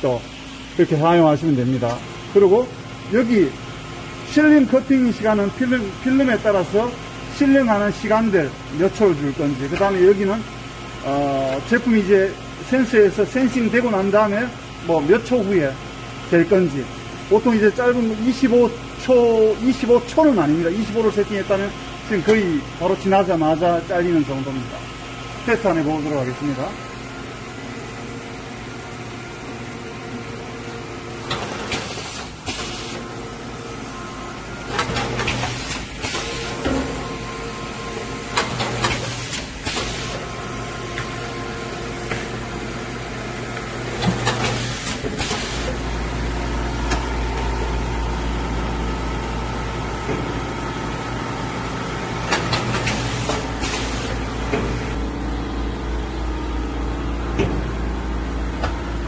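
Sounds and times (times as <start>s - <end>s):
motor hum: 18.2s - 59.0s
loud mechanical noises: 24.7s - 59.0s
deep loud hum: 54.2s - 59.0s.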